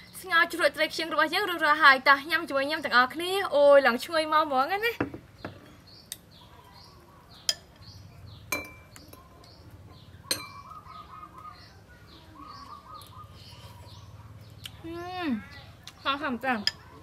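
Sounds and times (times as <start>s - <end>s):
birds chirping faintly: 0.0s - 17.0s
metal spoon clinking on glass bowl: 7.5s - 7.8s, 8.5s - 9.1s, 10.3s - 10.7s.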